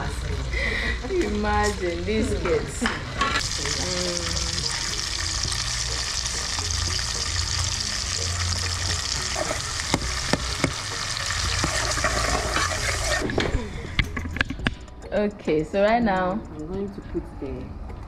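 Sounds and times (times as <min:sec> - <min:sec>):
onions sizzling in oil: 0:03.4 - 0:13.2.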